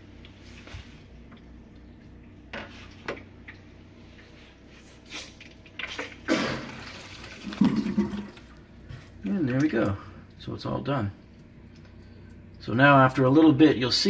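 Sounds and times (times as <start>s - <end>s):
sink water draining and gurgling: 5.3s - 9.8s.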